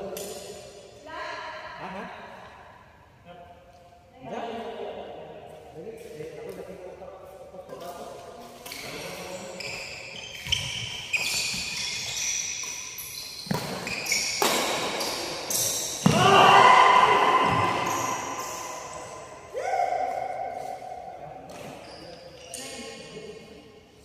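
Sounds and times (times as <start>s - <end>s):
shoes squeaking on court: 8.4s - 16.2s, 17.4s - 19.4s, 20.0s - 23.2s
racket hitting shuttlecock: 12.6s - 16.3s
person shouting: 16.1s - 17.8s.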